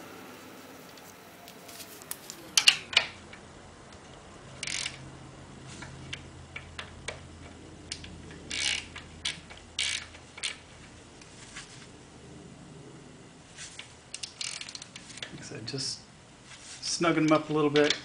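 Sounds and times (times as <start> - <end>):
socket ratchet clicking: 7.9 - 10.6, 14.2 - 15.3.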